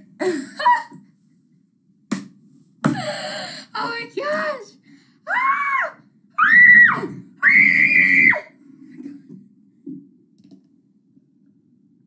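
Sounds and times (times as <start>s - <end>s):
boy squealing: 5.3s - 8.5s.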